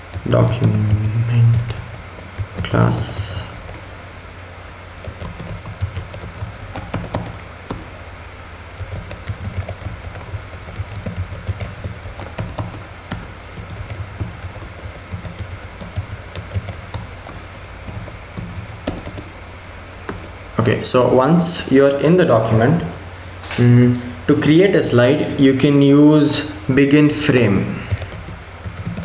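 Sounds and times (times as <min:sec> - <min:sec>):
computer keyboard typing: 0:00.0 - 0:03.9, 0:05.0 - 0:07.9, 0:08.7 - 0:19.3, 0:20.1 - 0:20.4, 0:27.8 - 0:29.0
steady low hum: 0:00.0 - 0:29.0.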